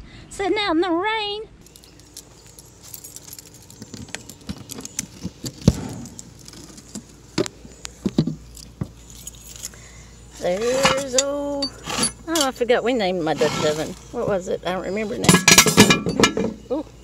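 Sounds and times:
keys jangling: 1.6 - 5.0.

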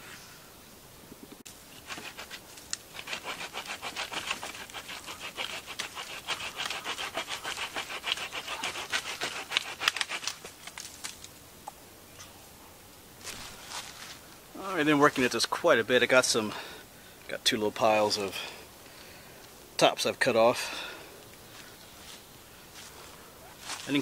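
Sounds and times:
hand saw cutting through branch: 1.8 - 10.6.

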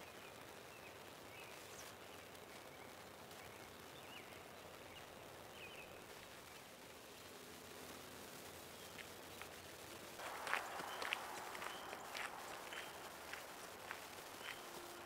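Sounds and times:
faint steady hiss: 0.0 - 15.0
bird chirps: 10.2 - 15.0.

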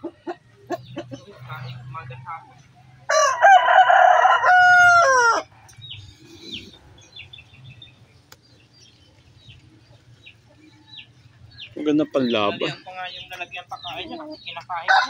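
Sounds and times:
rooster crowing: 3.1 - 5.5.

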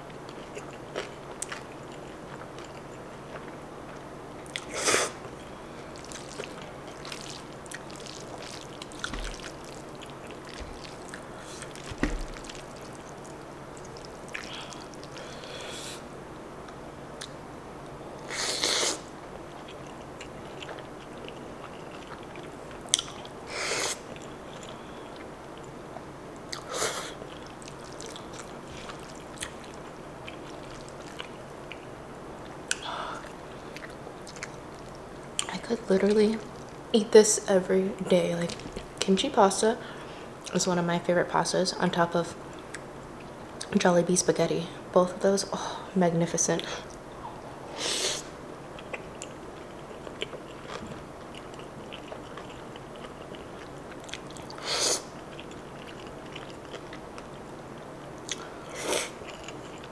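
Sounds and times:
chewing food: 0.0 - 15.5, 19.5 - 23.4, 24.0 - 36.8, 48.8 - 59.9.

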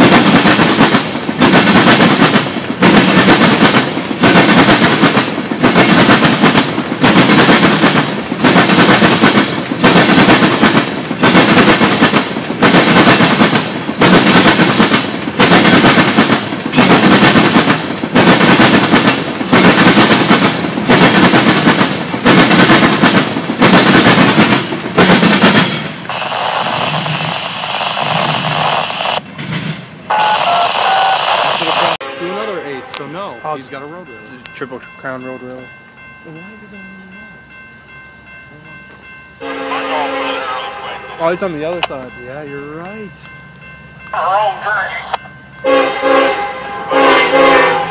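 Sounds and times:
freight train wheels clattering: 0.0 - 30.1
train rumble: 0.0 - 47.9.

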